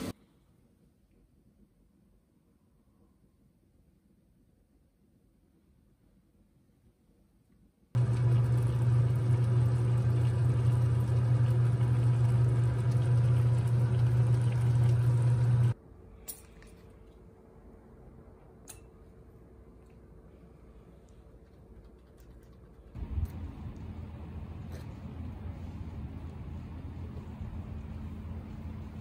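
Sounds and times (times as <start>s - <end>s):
pot cooking on gas stove: 8.0s - 15.8s
low hum: 8.0s - 29.0s.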